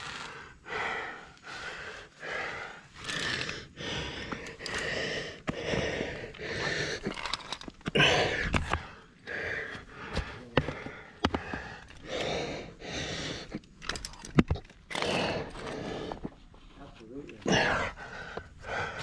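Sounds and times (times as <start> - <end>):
person panting hard: 0.0 - 13.7, 14.9 - 16.4, 17.5 - 19.0
gear clicking on rock: 2.4 - 16.4.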